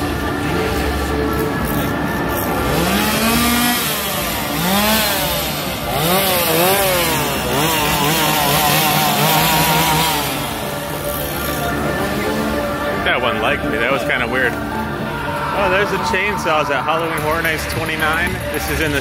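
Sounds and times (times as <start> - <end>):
chainsaw revving: 0.1 - 12.9.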